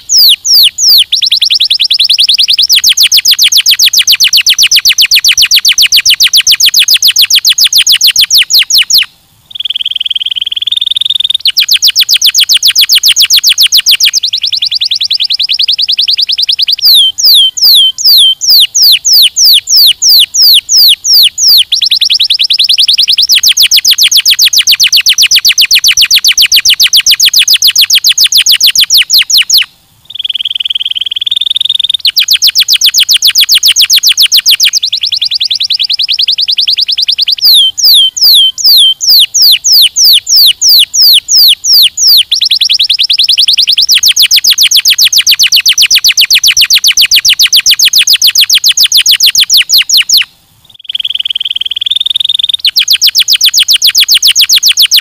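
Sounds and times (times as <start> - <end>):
canary singing trills: 0.0 - 55.0.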